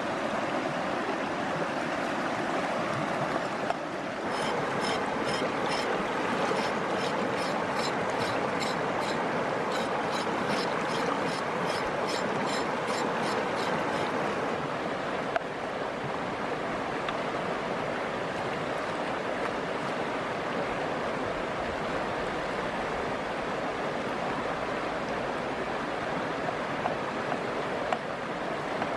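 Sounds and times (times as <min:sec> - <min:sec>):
stream flowing: 0:00.0 - 0:28.9
knife strokes on gourd: 0:04.3 - 0:05.9, 0:06.5 - 0:14.2.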